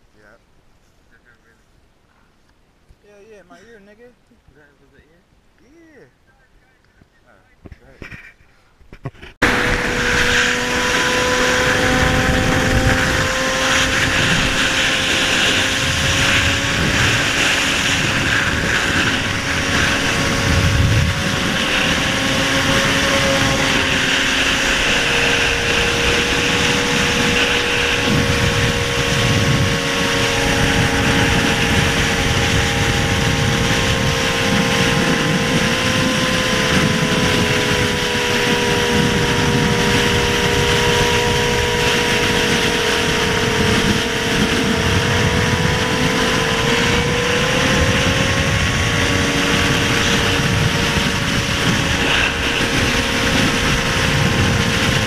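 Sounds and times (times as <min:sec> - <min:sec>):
wind buffeting on microphone: 0:06.9 - 0:55.0
motorcycle engines cruising: 0:09.1 - 0:55.0.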